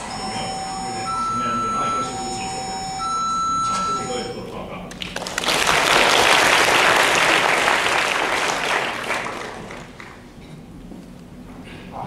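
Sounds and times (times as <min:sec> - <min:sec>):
audience applauding: 0:04.9 - 0:10.2.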